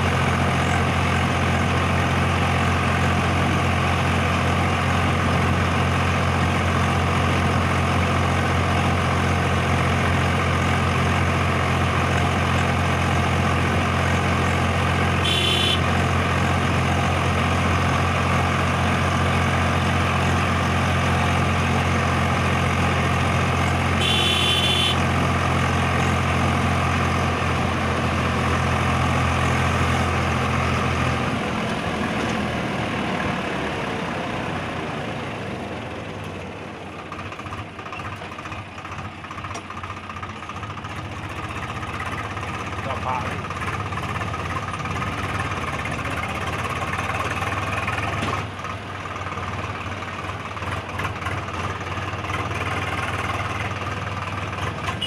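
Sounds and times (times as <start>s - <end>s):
tractor diesel engine running: 0.0s - 55.0s
short high-pitched toots: 24.0s - 25.0s.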